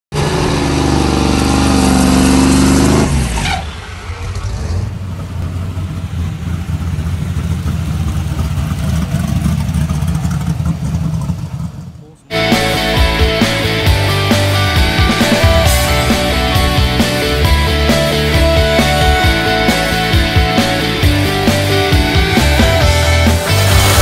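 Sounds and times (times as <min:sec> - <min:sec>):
car engine at high revs: 0:00.1 - 0:12.1, 0:13.6 - 0:24.0
lumpy engine rumble: 0:00.1 - 0:24.0
music: 0:12.3 - 0:24.0.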